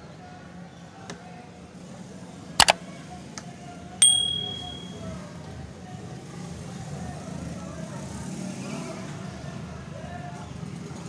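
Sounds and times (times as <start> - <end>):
bright bell ding: 4.0 - 5.0.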